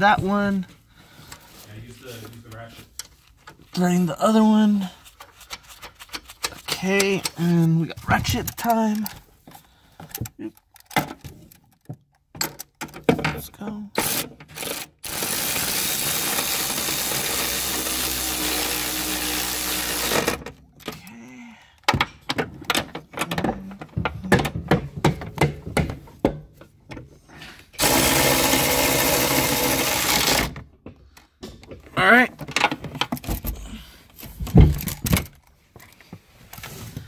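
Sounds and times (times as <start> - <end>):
power ratchet running: 14.0 - 20.4, 27.8 - 30.6.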